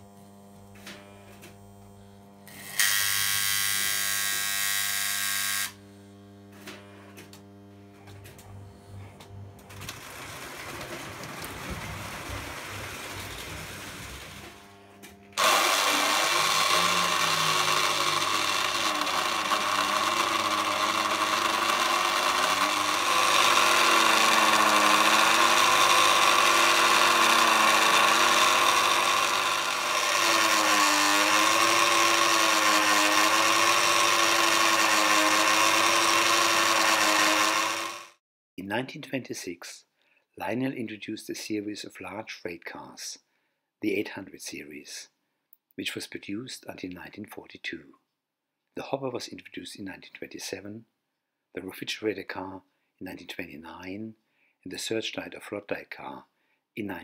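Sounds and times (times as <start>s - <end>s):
electric motor whirring: 0.9s - 6.6s, 12.6s - 38.2s.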